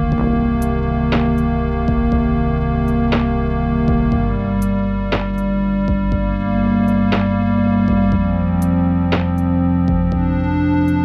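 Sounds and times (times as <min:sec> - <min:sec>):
held keyboard chords: 0:00.0 - 0:11.0.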